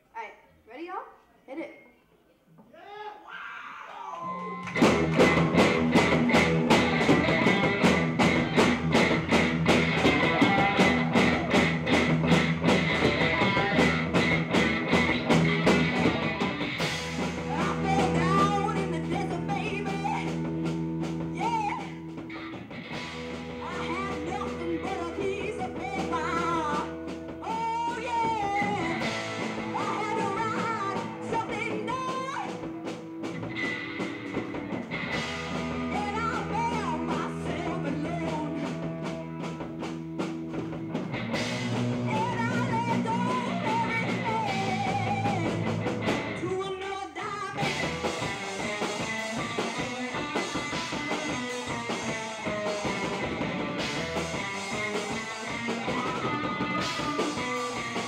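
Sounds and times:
live rock band playing: 4.3 - 58.0
female lead vocal: 17.4 - 20.5, 23.6 - 29.1, 29.7 - 32.6, 35.9 - 38.8, 42.1 - 45.6, 46.4 - 47.7.

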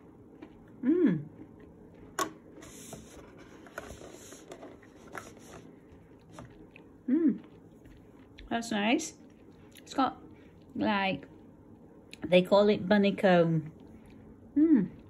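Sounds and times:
person chewing crunchy chocolate: 5.6 - 8.5.

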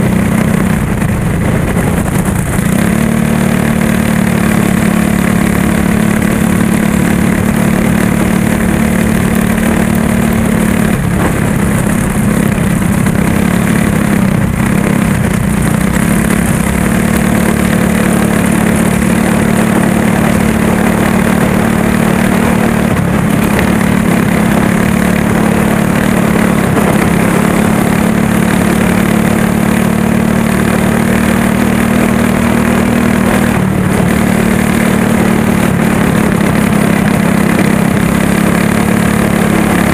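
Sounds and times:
go-kart engine at high revs: 0.0 - 39.9.

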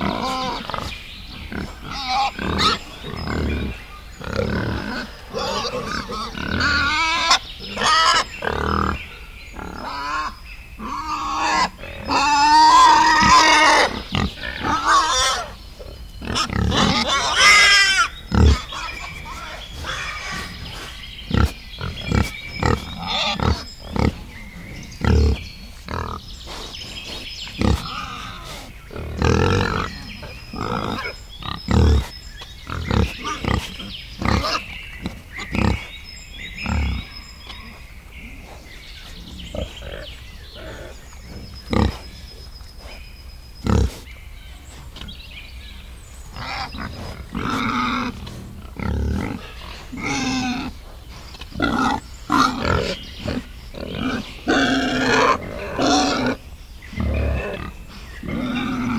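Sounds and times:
wild boar grunting: 0.0 - 45.3, 46.3 - 58.9
piglets squealing: 9.8 - 15.6, 16.2 - 20.4, 21.4 - 24.1.

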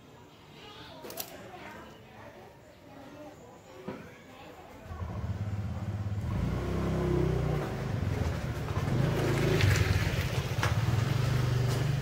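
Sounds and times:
small motorbike engine running: 5.0 - 12.0.

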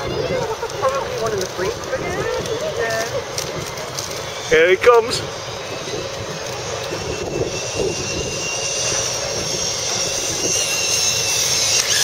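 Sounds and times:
zip line pulleys whirring: 0.0 - 12.0.

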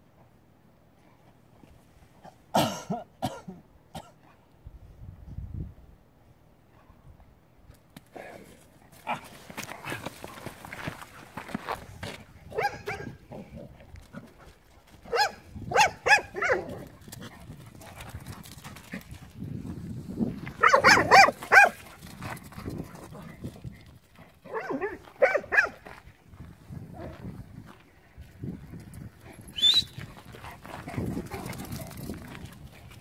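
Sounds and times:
dog barking and yelping: 12.5 - 13.2, 15.0 - 16.8, 20.6 - 21.8, 24.4 - 25.8.

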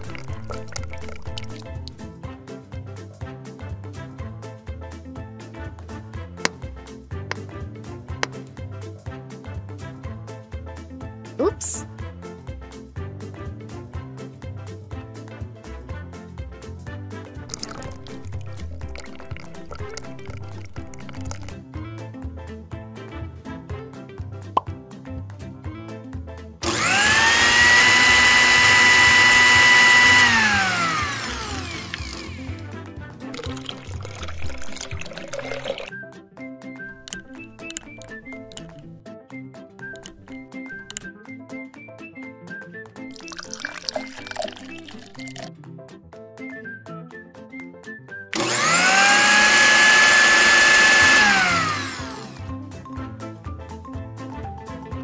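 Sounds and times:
soft background music: 0.0 - 55.0
blender motor whining: 26.6 - 32.8, 33.4 - 35.9, 48.3 - 52.5.

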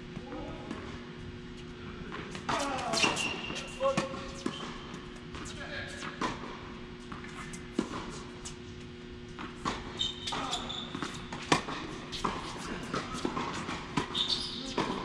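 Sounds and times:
shoes shuffling on court: 1.2 - 15.0
tennis ball struck and bouncing: 10.9 - 15.0.

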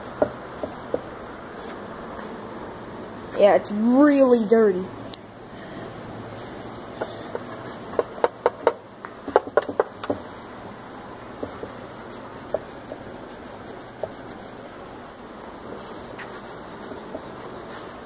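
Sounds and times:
rag rubbing on engine shroud: 6.1 - 8.8, 11.4 - 14.9.

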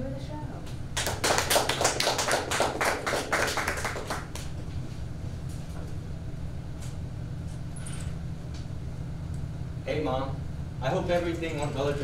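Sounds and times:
low steady hum: 0.0 - 12.0
audience applauding: 1.0 - 4.5.

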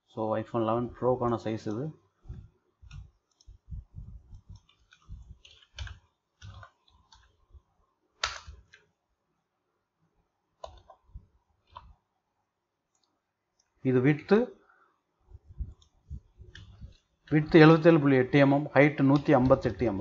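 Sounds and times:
keyboard typing: 4.3 - 7.4, 10.6 - 11.0, 19.0 - 20.0.

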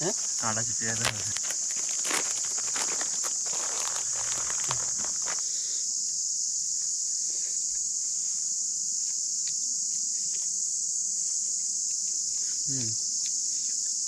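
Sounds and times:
forest insect chorus buzzing: 0.0 - 14.0
plastic packet crinkling: 0.2 - 5.4.

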